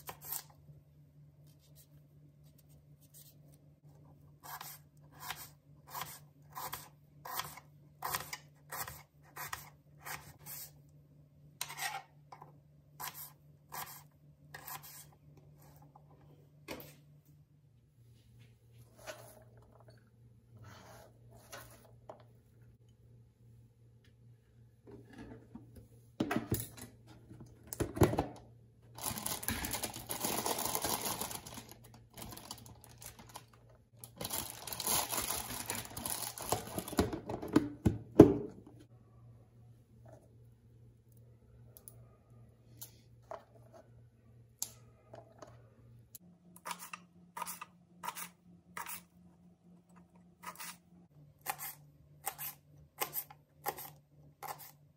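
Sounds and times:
plastic bag crinkling: 0:29.0 - 0:37.0.

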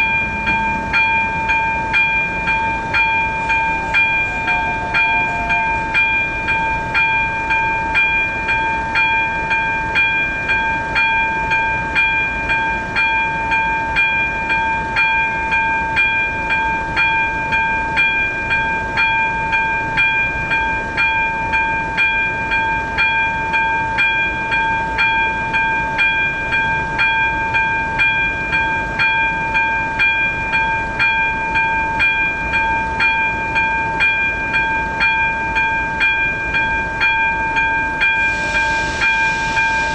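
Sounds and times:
level-crossing warning bell ringing: 0:00.0 - 0:39.9.

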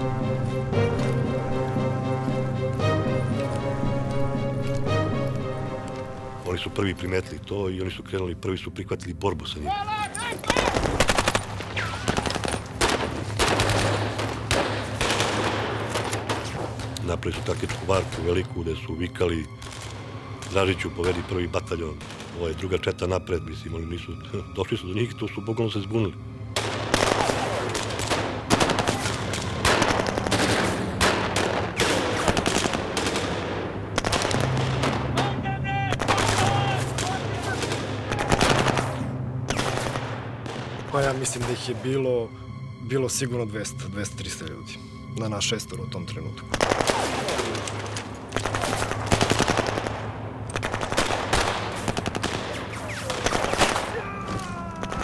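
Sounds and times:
rapid rifle gunfire: 0:10.6 - 0:16.5, 0:26.6 - 0:34.8, 0:46.6 - 0:47.6, 0:48.4 - 0:50.0, 0:50.6 - 0:53.9
automatic gunfire: 0:48.4 - 0:53.9.

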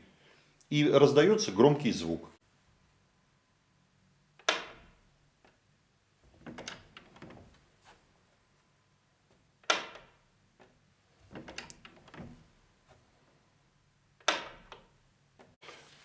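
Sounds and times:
door latch clacking shut: 0:04.4 - 0:05.0, 0:06.4 - 0:07.6, 0:09.6 - 0:10.2, 0:11.3 - 0:12.5, 0:14.2 - 0:14.9
latch and handle clatter: 0:06.3 - 0:07.6, 0:09.6 - 0:10.7, 0:11.3 - 0:12.5, 0:14.2 - 0:14.9.

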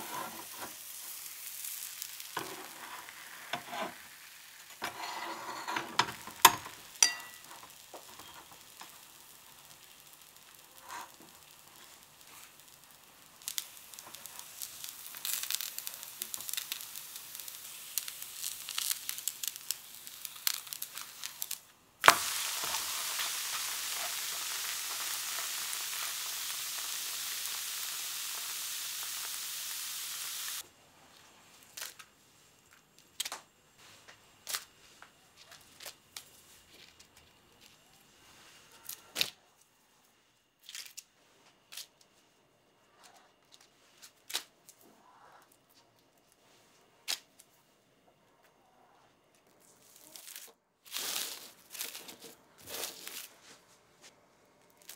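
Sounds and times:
batter sizzling in a frying pan: 0:00.0 - 0:30.6.

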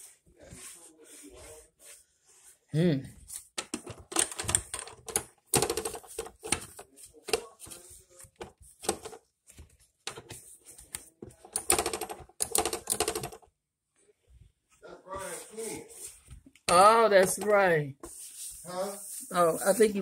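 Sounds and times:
tapping strokes: 0:11.5 - 0:13.4
cloth scrubbing plastic: 0:15.2 - 0:20.0.

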